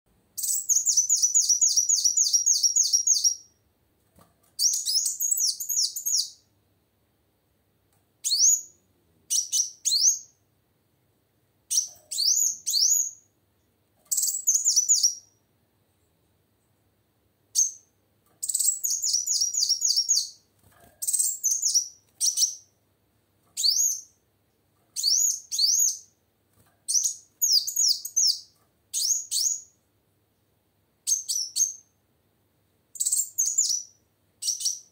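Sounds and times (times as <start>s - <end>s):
sunbird high-pitched chirping: 0.4s - 3.6s, 4.6s - 6.5s, 8.2s - 10.4s, 11.7s - 13.3s, 14.1s - 15.4s, 17.5s - 20.4s, 21.0s - 22.8s, 23.6s - 24.2s, 25.0s - 26.2s, 26.9s - 29.8s, 31.0s - 31.9s, 33.0s - 34.9s.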